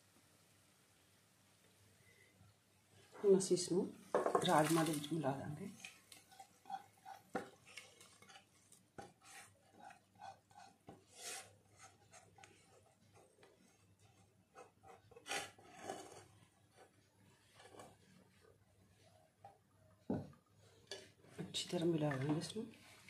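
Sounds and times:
spatula scraping a pan: 5.7 - 18.4.

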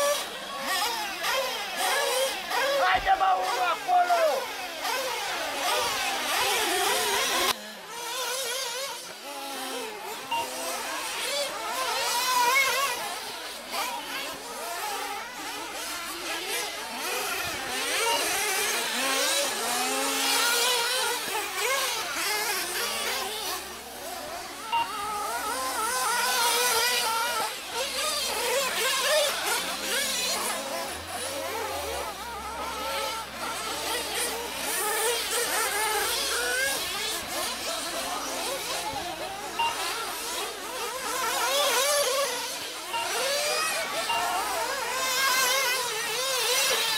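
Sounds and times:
rc car engines whining: 0.0 - 46.9.

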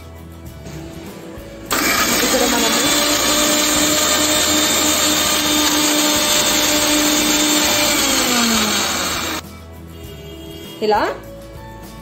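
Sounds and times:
mixer grinder running: 1.7 - 9.4.

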